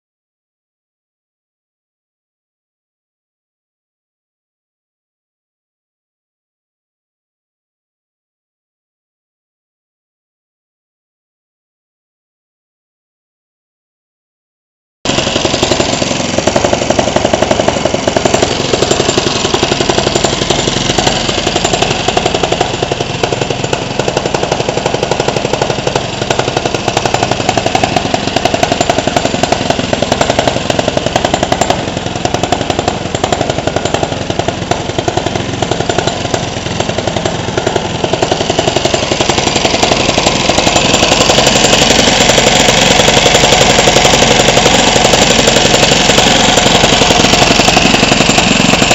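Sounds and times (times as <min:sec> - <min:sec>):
kart engine running: 0:15.1 - 0:48.9.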